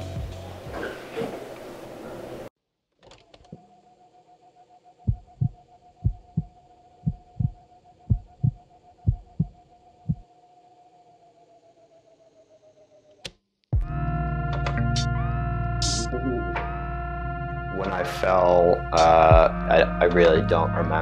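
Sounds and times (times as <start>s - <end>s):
heartbeat thumps: 5.1s - 10.2s
steady high tone: 13.9s - 21.0s.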